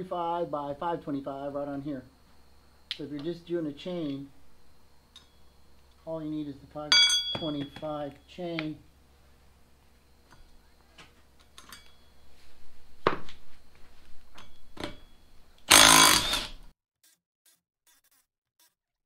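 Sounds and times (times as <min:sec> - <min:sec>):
metal tools clinking: 0:05.1 - 0:05.5, 0:06.9 - 0:07.9, 0:11.4 - 0:12.2
impact wrench burst: 0:15.7 - 0:16.7.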